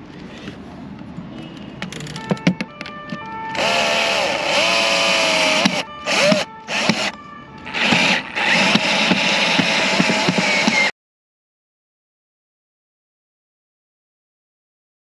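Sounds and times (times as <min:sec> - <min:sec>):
cordless drill motor whining: 0:03.5 - 0:10.9.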